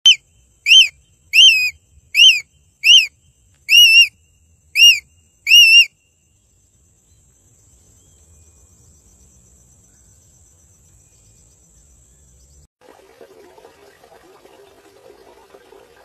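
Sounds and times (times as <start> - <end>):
eagle whistled cries: 0.1 - 6.0.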